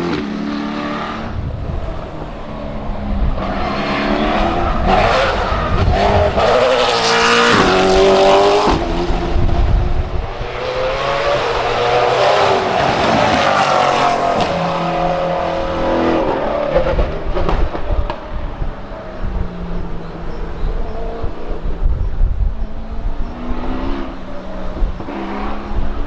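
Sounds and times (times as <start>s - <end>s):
race car engine accelerating: 22.6s - 26.0s.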